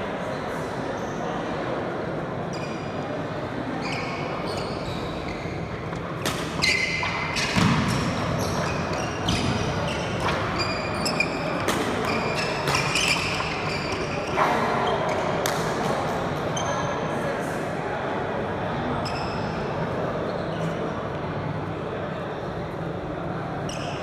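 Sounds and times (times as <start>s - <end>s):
sports shoes squeaking: 2.5s - 3.1s, 3.7s - 15.4s, 16.5s - 17.0s, 19.0s - 19.6s, 23.6s - 24.0s
racket striking shuttlecock: 6.2s - 7.9s.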